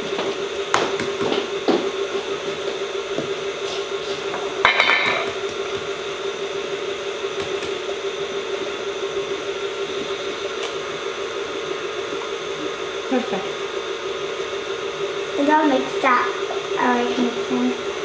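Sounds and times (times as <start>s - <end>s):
stand mixer motor humming: 0.0s - 18.0s
dishes clattering: 4.6s - 5.3s.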